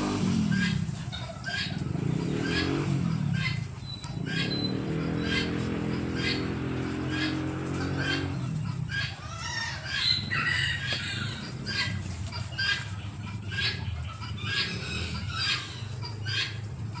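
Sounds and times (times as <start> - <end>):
bird calling: 0.0 - 17.0.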